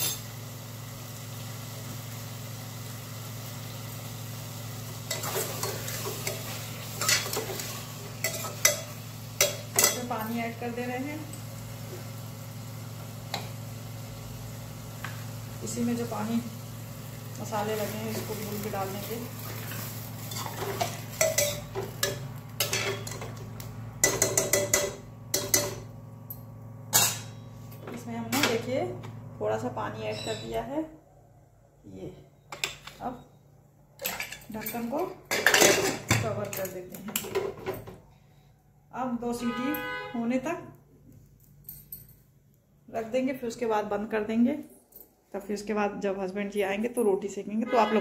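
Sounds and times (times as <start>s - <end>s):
faint frying sizzle: 0.0s - 30.7s.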